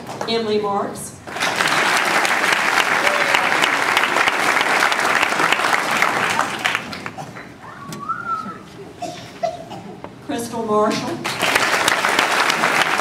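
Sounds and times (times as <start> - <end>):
audience applauding: 1.3 - 7.6, 11.2 - 13.0.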